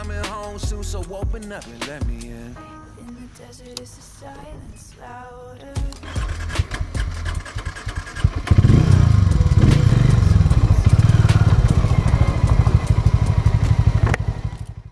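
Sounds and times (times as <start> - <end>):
motorcycle engine revving: 5.9 - 14.9.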